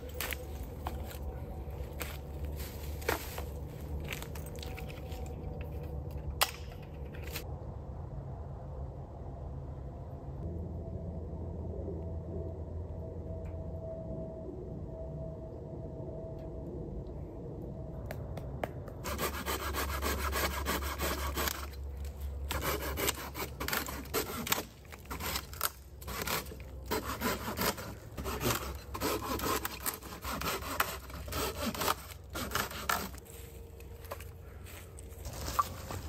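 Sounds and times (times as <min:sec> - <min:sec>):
hand saw cutting wood: 0:19.0 - 0:21.8, 0:22.5 - 0:33.3.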